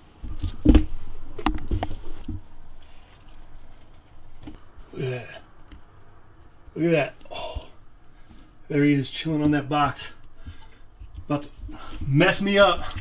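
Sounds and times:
knocks and thumps: 0.2s - 2.6s.

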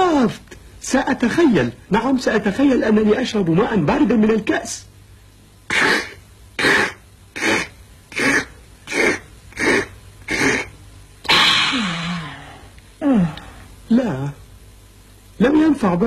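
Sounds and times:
man making gulping sounds: 5.7s - 13.7s
man breathy aah: 11.3s - 13.7s.

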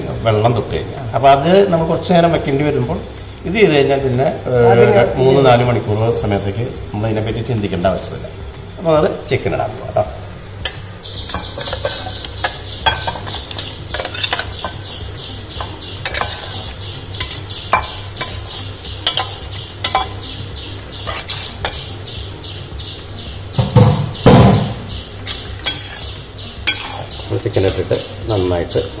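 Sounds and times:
ladle clattering in a pot: 10.6s - 14.9s, 15.6s - 20.2s, 23.6s - 27.2s
spoon scraping a steel bowl: 11.1s - 15.0s, 15.6s - 20.3s, 21.0s - 21.9s, 25.2s - 27.2s.

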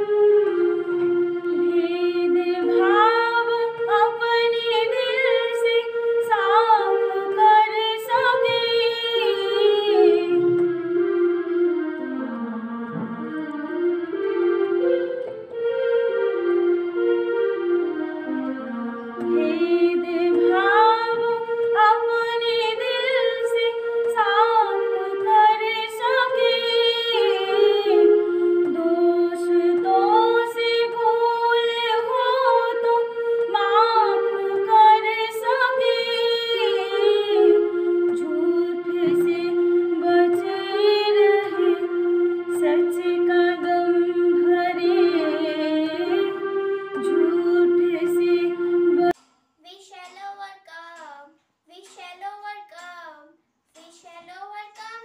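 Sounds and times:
woman singing: 1.6s - 10.6s, 19.2s - 41.9s, 42.5s - 46.4s, 47.0s - 49.2s.

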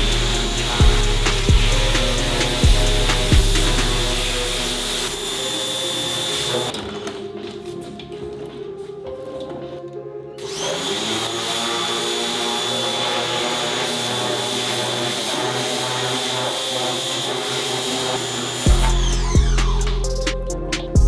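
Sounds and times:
machine hissing with high whine: 0.0s - 6.7s
background music: 0.0s - 21.0s.

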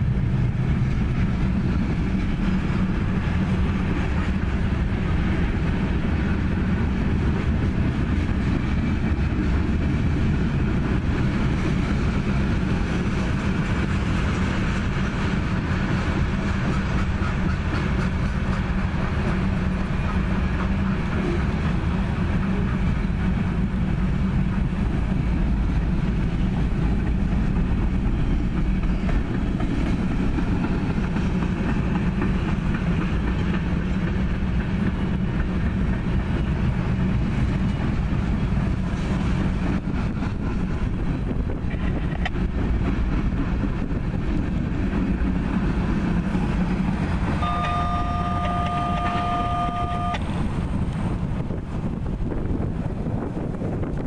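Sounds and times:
train wheels rumbling on rail: 0.0s - 54.0s
two-note tone: 47.4s - 50.2s.

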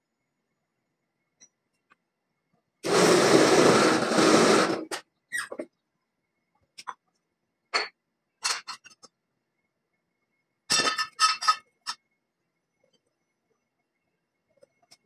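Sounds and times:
steel parts clinking and clanking: 7.8s - 9.1s, 10.7s - 12.0s.

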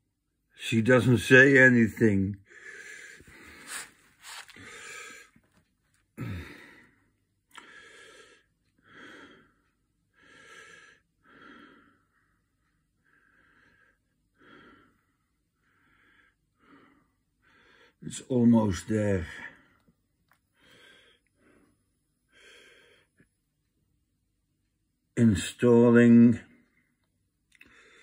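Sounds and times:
faint breathing: 2.4s - 5.5s, 6.2s - 18.0s, 19.2s - 23.3s, 26.5s - 28.0s.

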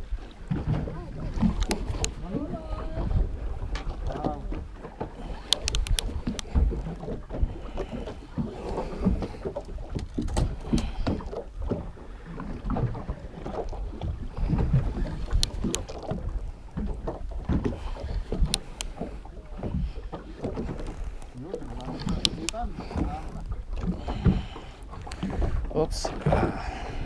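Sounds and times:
water slapping against boat hull: 0.0s - 27.0s
wind gusting across microphone: 0.0s - 27.0s
sharp clicks: 1.4s - 2.2s, 5.3s - 6.6s, 18.4s - 19.0s, 22.0s - 22.6s.

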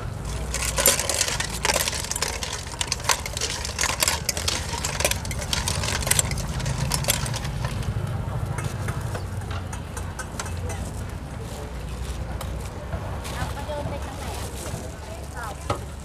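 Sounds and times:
metal spoon clinking on a bowl: 0.2s - 7.9s.

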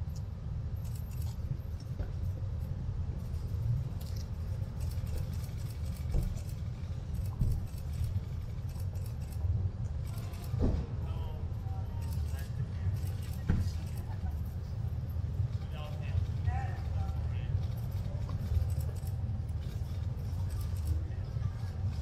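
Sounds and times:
light clicks and jingles: 0.0s - 9.4s.

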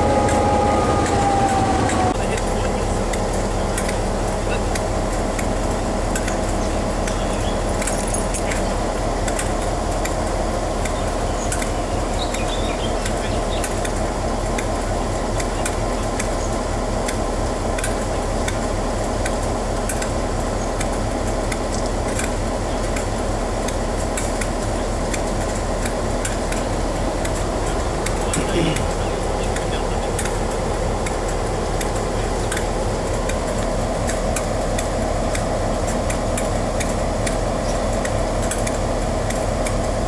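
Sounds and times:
locomotive engine idling: 0.0s - 40.0s.

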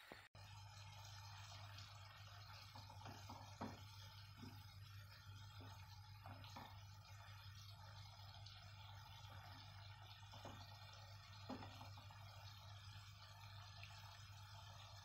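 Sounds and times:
meat simmering in a pan: 0.4s - 15.0s
wooden spoon knocking on pan: 2.7s - 4.6s, 6.2s - 6.8s, 11.4s - 11.9s.

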